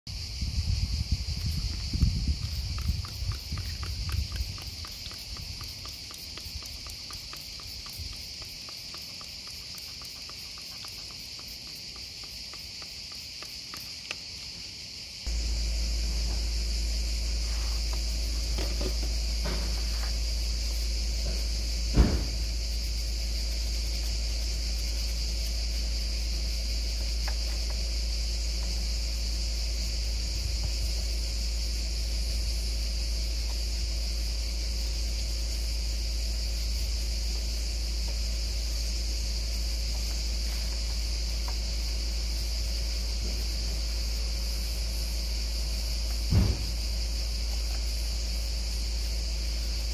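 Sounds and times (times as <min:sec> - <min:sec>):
insect chorus: 0:00.1 - 0:49.9
knocks: 0:21.2 - 0:22.4, 0:46.3 - 0:46.8.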